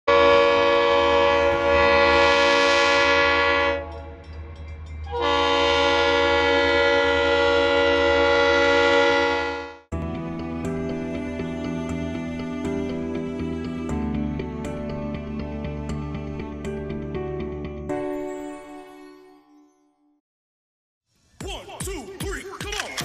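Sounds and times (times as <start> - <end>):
locomotive air horn blasts: 0.1 - 4.2, 5.1 - 9.9.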